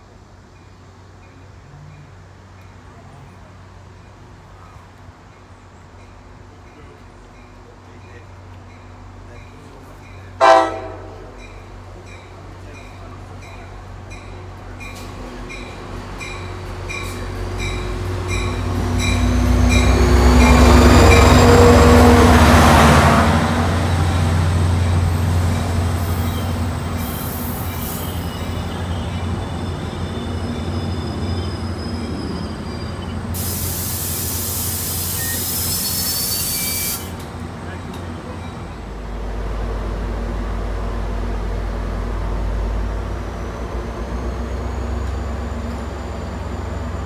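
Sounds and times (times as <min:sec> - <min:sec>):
diesel locomotive engine: 0:00.0 - 0:47.0
locomotive bell ringing: 0:06.0 - 0:22.2
train wheel and brake squeals: 0:11.4 - 0:22.4, 0:24.0 - 0:39.0, 0:43.3 - 0:47.0
air hissing: 0:33.3 - 0:37.2.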